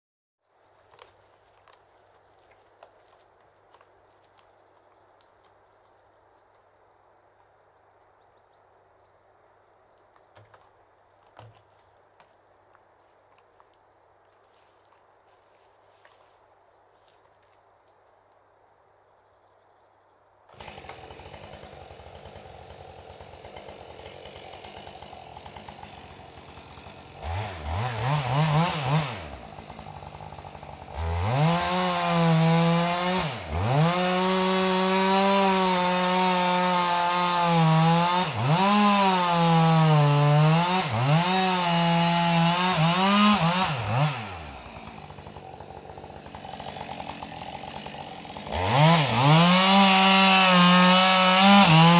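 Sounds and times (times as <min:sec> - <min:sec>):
chainsaw cutting wood: 0:10.4 - 0:12.3, 0:20.5 - 0:51.9.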